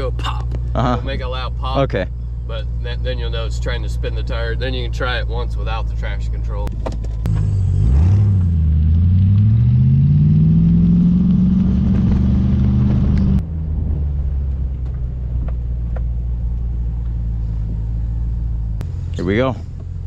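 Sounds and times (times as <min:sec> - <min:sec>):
car engine accelerating: 0:00.0 - 0:20.0
car engine idling low: 0:11.9 - 0:20.0.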